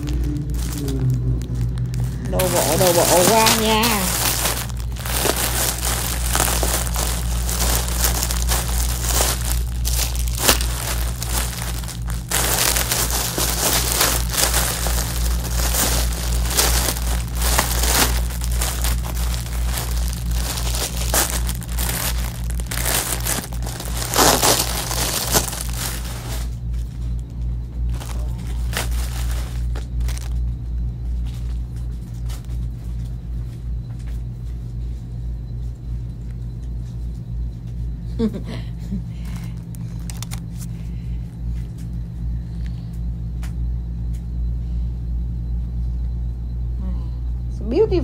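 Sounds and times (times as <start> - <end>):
plastic bags crinkling: 0.0 - 27.3, 27.9 - 30.6, 39.2 - 40.7
steady low hum: 0.0 - 48.0.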